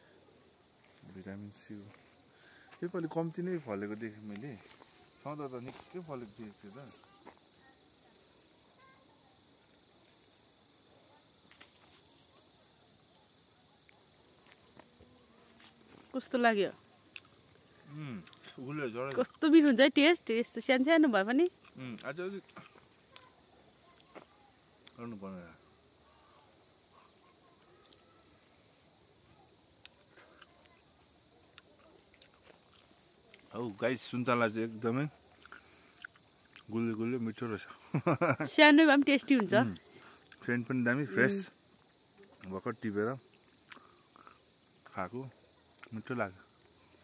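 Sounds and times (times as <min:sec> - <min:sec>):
high-pitched insect drone: 0:00.0 - 0:10.7, 0:14.4 - 0:31.3, 0:32.2 - 0:47.0
faint chirps: 0:00.0 - 0:19.4, 0:21.6 - 0:38.2.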